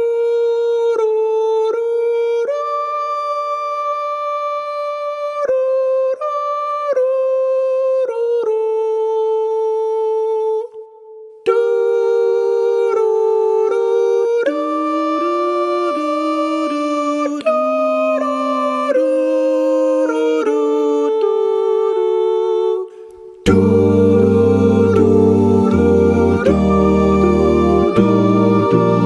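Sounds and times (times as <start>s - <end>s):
person humming a melody: 11.5s - 29.0s
second voice humming harmony: 23.5s - 29.0s.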